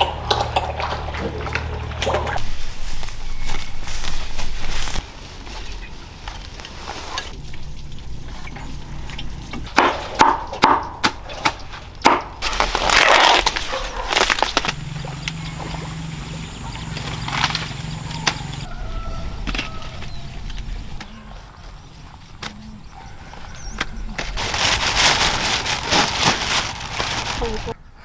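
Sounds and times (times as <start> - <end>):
leaves rustling: 2.4 - 10.2, 11.6 - 27.8.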